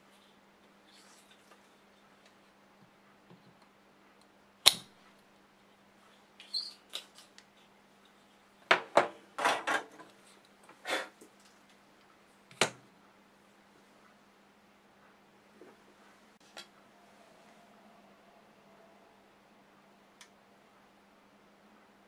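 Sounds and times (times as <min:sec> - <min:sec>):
sharp snap: 0:04.6 - 0:05.0.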